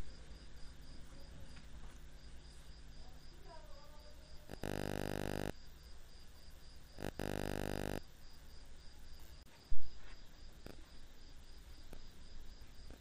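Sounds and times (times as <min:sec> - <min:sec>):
cricket chirping: 0:00.0 - 0:13.0
buzzing tone: 0:04.5 - 0:05.6, 0:07.0 - 0:08.1.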